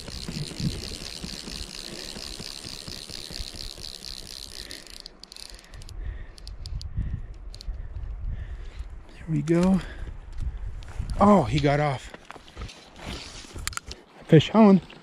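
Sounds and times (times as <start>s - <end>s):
fly reel drag clicking: 0.0s - 7.8s.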